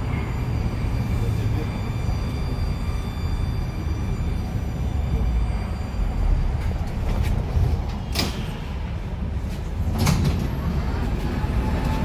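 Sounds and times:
train equipment rumble and hum: 0.0s - 12.0s
high-pitched tones: 0.1s - 6.6s.

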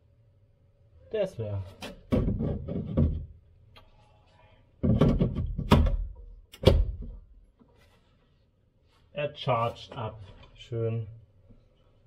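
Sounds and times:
plastic battery clunks and knocks: 1.9s - 3.4s, 4.8s - 7.2s.

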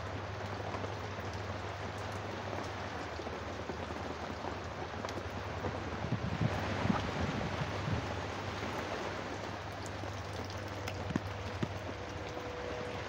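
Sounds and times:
steady rain: 0.0s - 13.0s
water drips tapping: 9.7s - 13.0s.

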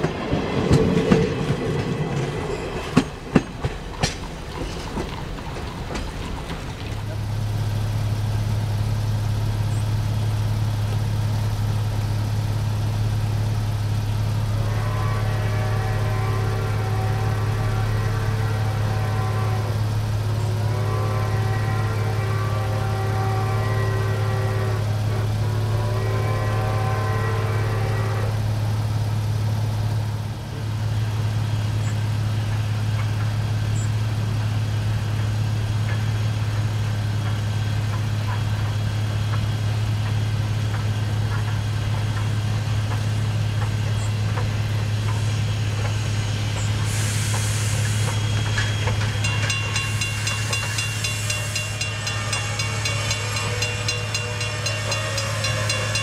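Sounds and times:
steam hissing: 0.0s - 56.0s
steam locomotive whistle: 14.4s - 28.6s, 43.3s - 56.0s
low drone: 33.6s - 56.0s.

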